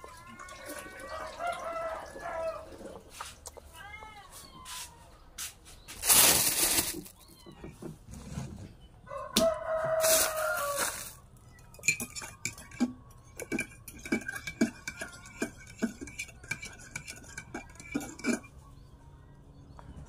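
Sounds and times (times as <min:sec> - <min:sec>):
rooster crowing: 0:00.2 - 0:03.0, 0:09.1 - 0:11.2
clicks of mushrooms picked from leaves: 0:10.0 - 0:11.2.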